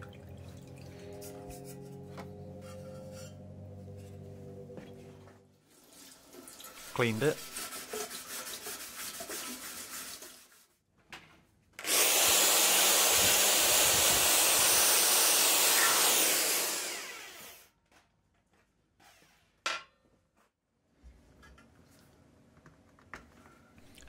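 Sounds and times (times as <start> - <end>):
scrubbing by hand: 6.9 - 10.7
drill with wire brush whirring: 11.8 - 17.7.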